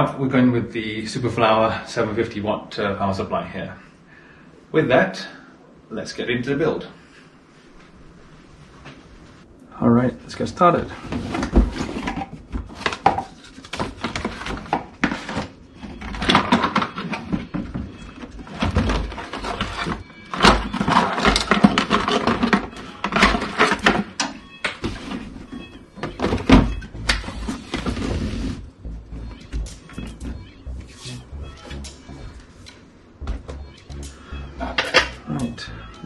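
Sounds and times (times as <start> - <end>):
cardboard rustling and scraping: 10.9 - 24.1, 24.8 - 28.7.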